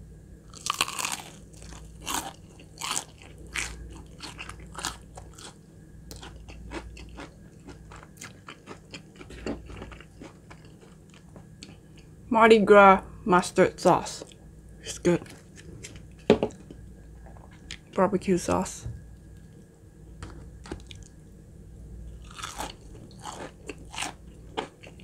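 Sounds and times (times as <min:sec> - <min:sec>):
crunchy chewing: 0:00.5 - 0:12.1, 0:22.1 - 0:25.0.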